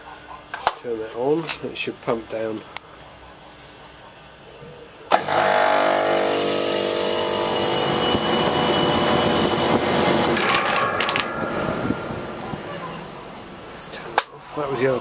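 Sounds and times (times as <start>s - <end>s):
refrigeration compressor running: 5.1s - 15.0s
fast rattle: 8.8s - 15.0s.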